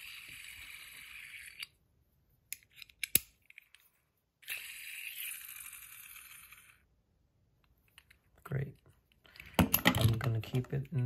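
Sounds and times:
spinning coin whirring: 0.0s - 1.7s, 4.4s - 6.9s.

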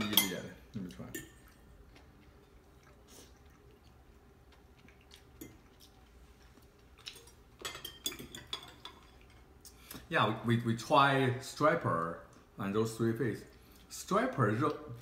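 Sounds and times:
quiet chewing: 0.6s - 10.1s.

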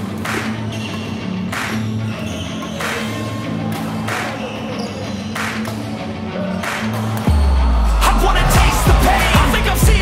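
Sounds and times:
pop-rock music with drum beat: 6.7s - 10.0s.

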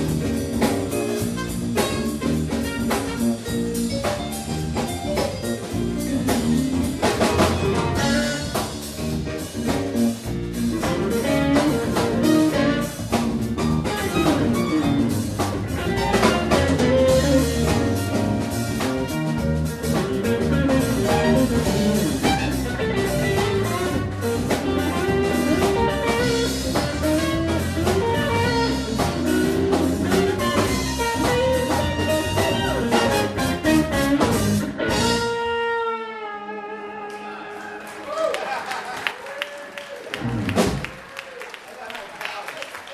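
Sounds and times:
drum kit beat: 0.0s - 35.7s, 40.2s - 41.0s
electric guitar: 0.0s - 37.9s
bass guitar: 0.0s - 38.3s, 40.1s - 41.0s
trumpet: 1.0s - 3.9s, 7.3s - 8.9s, 10.8s - 37.5s.

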